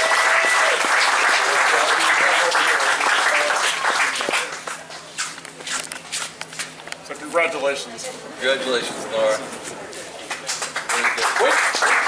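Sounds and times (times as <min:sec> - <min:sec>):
audience applauding: 0:00.0 - 0:05.0, 0:10.3 - 0:12.0.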